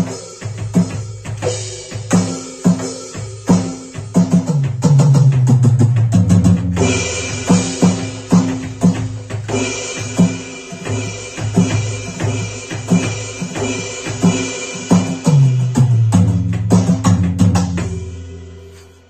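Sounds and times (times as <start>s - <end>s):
electronic drum kit groove: 0.0s - 19.0s
cymbal crashes: 6.8s - 15.8s, 17.7s - 19.0s.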